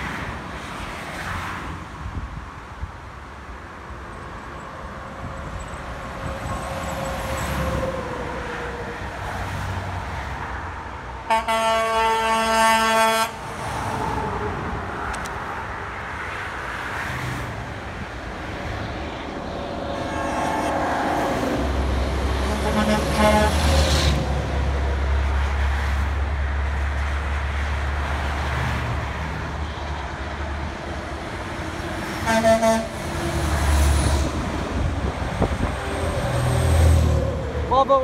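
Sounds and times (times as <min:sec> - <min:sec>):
truck horn blasts: 0:11.3 - 0:13.4, 0:19.9 - 0:21.2, 0:22.4 - 0:23.9, 0:32.2 - 0:33.0.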